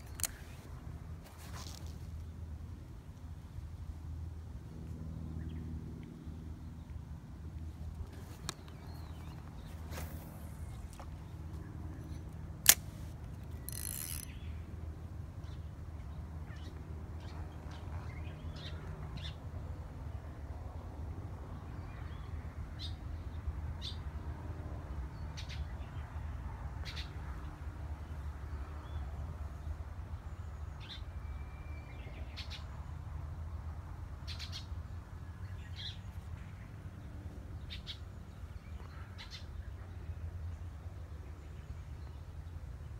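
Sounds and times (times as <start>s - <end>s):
birds chirping: 8.0s - 14.7s
sharp click: 12.0s - 14.3s.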